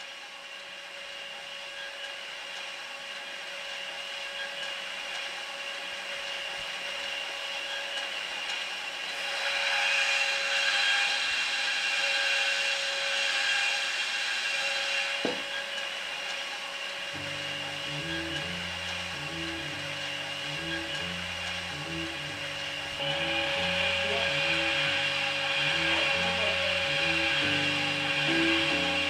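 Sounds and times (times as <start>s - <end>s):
machine motor hum with whine: 0.0s - 29.0s
brushes hissing on glass: 17.2s - 29.0s.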